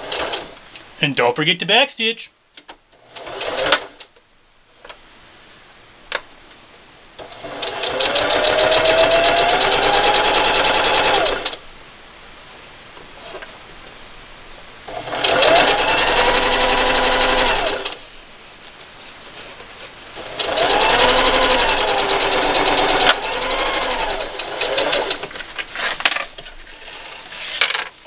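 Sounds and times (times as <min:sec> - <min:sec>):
sewing machine running: 0:03.0 - 0:04.0, 0:07.2 - 0:11.5, 0:14.9 - 0:18.0, 0:20.2 - 0:25.3.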